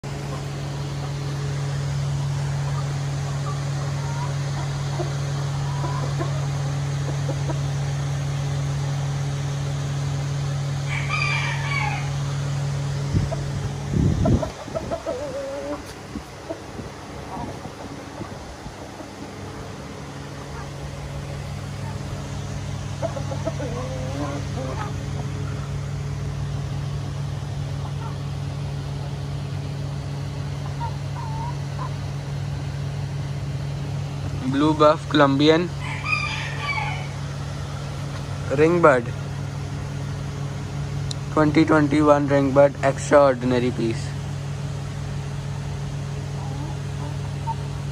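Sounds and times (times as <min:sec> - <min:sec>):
steady low hum: 0:00.0 - 0:47.9
chickens clucking: 0:00.1 - 0:09.7, 0:10.8 - 0:40.1, 0:44.7 - 0:47.9
soft chicken call: 0:10.8 - 0:12.2, 0:35.8 - 0:37.2, 0:46.3 - 0:47.7
chicken call: 0:10.9 - 0:12.2, 0:23.0 - 0:25.7, 0:30.6 - 0:32.0, 0:35.8 - 0:37.2.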